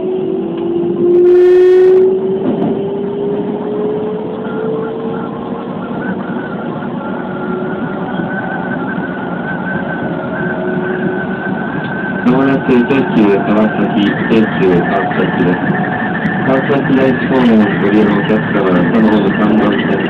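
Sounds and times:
train rail running noise: 0:00.0 - 0:20.0
train horn blast: 0:00.9 - 0:02.3.

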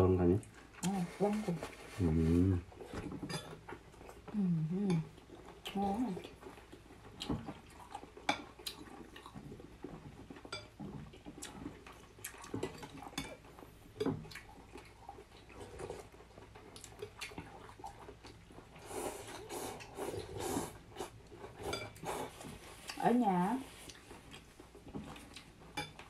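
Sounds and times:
slurping noodles: 0:18.8 - 0:22.9.

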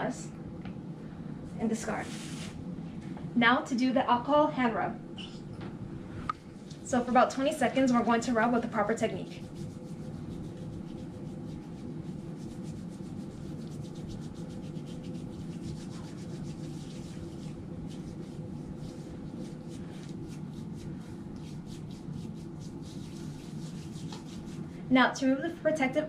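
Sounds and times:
low room hum: 0:00.0 - 0:26.0
hands rubbing together: 0:01.8 - 0:02.6, 0:06.4 - 0:24.8.

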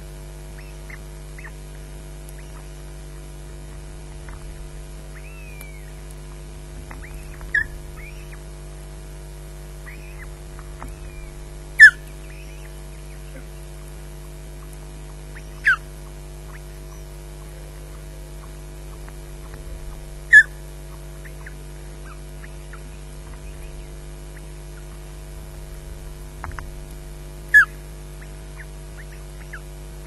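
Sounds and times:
steady electrical hum: 0:00.0 - 0:30.0
osprey whistled calls: 0:00.5 - 0:01.6, 0:02.3 - 0:02.8, 0:03.6 - 0:06.1, 0:06.8 - 0:08.6, 0:09.8 - 0:13.8, 0:14.6 - 0:17.2, 0:20.2 - 0:25.2, 0:27.5 - 0:29.7
faint chirps: 0:00.5 - 0:25.2.

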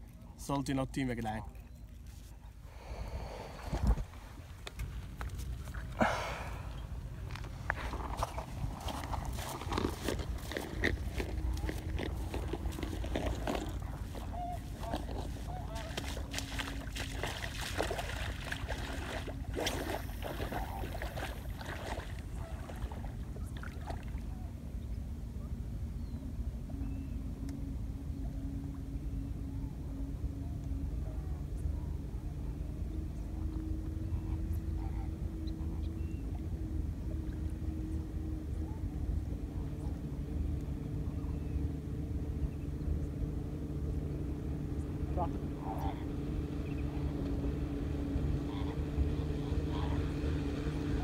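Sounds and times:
constant rumble: 0:00.0 - 0:51.0
low engine hum: 0:00.0 - 0:51.0
wind buffeting microphone: 0:03.3 - 0:04.8
shallow water splashing at shore: 0:07.8 - 0:24.2.

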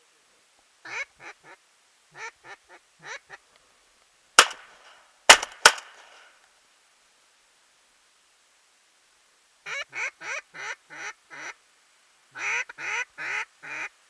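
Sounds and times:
duck quacking: 0:00.8 - 0:03.4, 0:09.6 - 0:11.6, 0:12.4 - 0:13.9
shotgun shots: 0:04.4 - 0:06.3.

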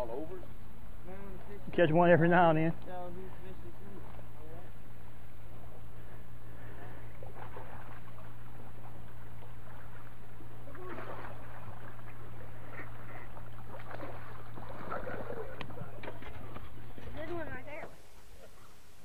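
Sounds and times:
steady low hum: 0:00.0 - 0:19.0
fish thrashing in water: 0:07.1 - 0:17.2.

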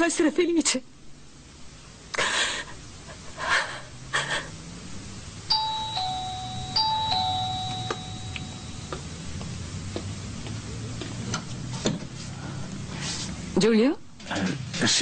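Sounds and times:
two-tone doorbell chime: 0:05.5 - 0:09.2.

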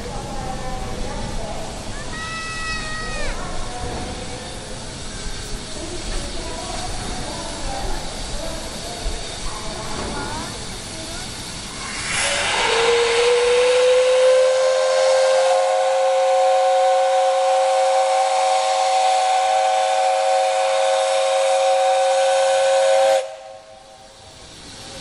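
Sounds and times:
steam hiss: 0:00.0 - 0:25.0
steam whistle long blast: 0:11.9 - 0:23.9.

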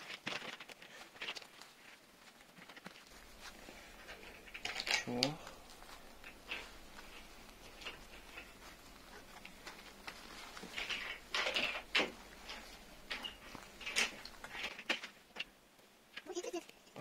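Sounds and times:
wire fan guard scraping and clicking: 0:02.6 - 0:15.5
fur rustling: 0:03.0 - 0:14.7.

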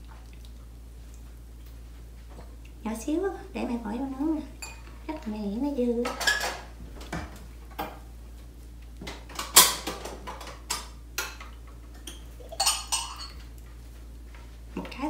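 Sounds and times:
dishes clinking on a counter: 0:04.6 - 0:04.9, 0:06.0 - 0:08.0, 0:09.1 - 0:13.5.

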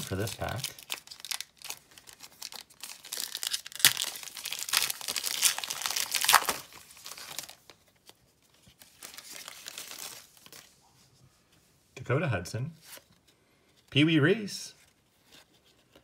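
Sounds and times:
foil wrapper tearing and crinkling: 0:00.0 - 0:07.7
cards shuffling: 0:00.0 - 0:10.7.

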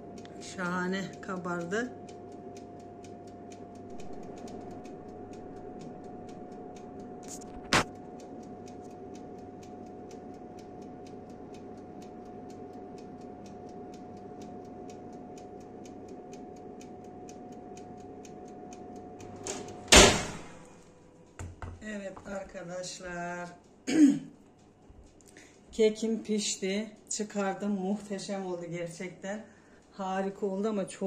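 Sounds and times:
oven fan hum with whine: 0:00.0 - 0:31.0
regular ticking: 0:00.0 - 0:31.0
sharp click: 0:03.8 - 0:08.0.

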